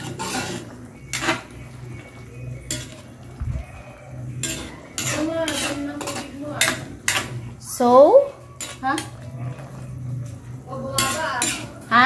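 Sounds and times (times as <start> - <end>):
metal ladle clinking on wok: 2.6 - 3.0, 4.4 - 7.4, 10.9 - 11.8.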